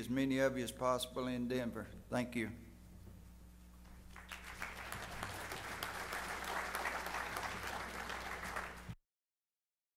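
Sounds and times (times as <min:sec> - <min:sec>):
steady low hum: 0:00.0 - 0:09.0
audience applauding: 0:04.1 - 0:09.0.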